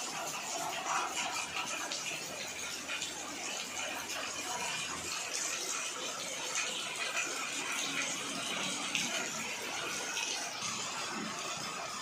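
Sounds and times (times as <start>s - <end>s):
heavy rain on flooded road: 7.5s - 12.0s.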